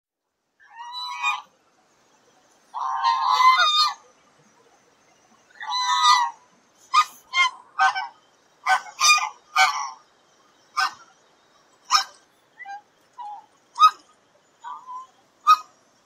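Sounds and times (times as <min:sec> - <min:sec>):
goose honking: 0:00.7 - 0:01.5, 0:02.7 - 0:04.0, 0:05.5 - 0:10.0, 0:10.8 - 0:11.0, 0:11.9 - 0:14.0, 0:14.6 - 0:15.7.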